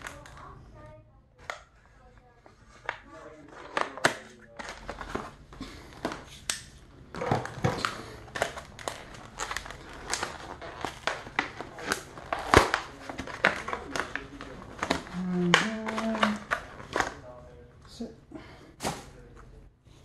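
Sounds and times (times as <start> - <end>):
plastic packaging crinkling: 3.2 - 17.4.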